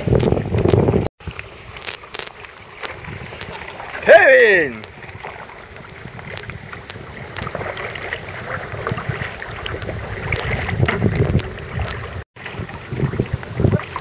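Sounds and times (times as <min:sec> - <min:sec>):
wind rumble on microphone: 0:00.0 - 0:01.8, 0:02.9 - 0:04.1, 0:04.9 - 0:14.0
paddle splashes: 0:00.2 - 0:14.0
water sloshing against hull: 0:02.4 - 0:04.1, 0:04.9 - 0:14.0.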